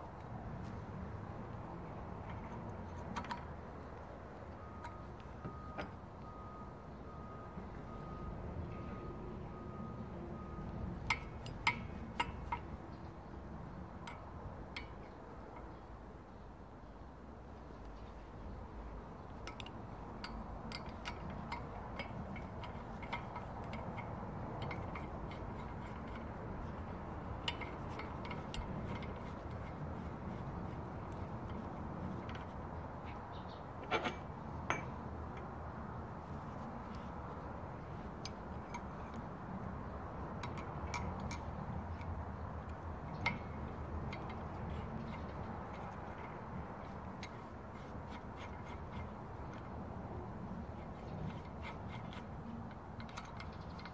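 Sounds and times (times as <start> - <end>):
low background noise: 0.0 - 53.9
steady low background hum: 0.0 - 53.9
sharp metallic clicks: 9.7 - 15.9, 19.2 - 35.8, 36.8 - 53.9.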